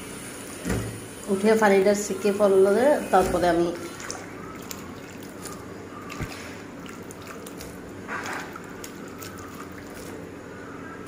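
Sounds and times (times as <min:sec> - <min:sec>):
water dripping and trickling: 0:00.2 - 0:10.4
wet rustle of fruit slices: 0:03.0 - 0:10.5.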